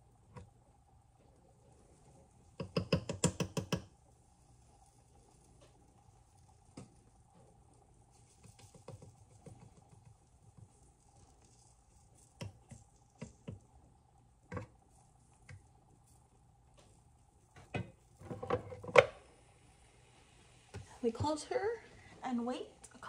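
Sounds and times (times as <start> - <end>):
fork tapping and scraping mold: 2.6 - 3.9.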